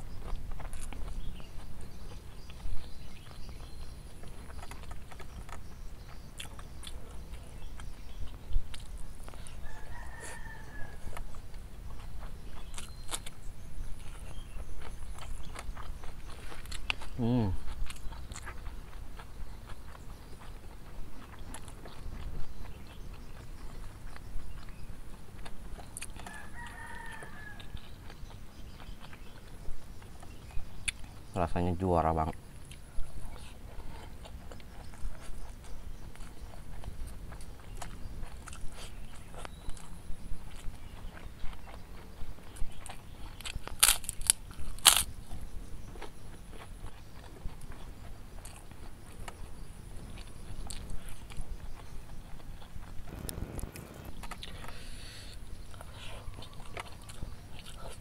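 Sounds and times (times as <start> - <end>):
chewing: 0.0 - 58.0
rooster crowing: 9.4 - 11.2, 26.2 - 27.9.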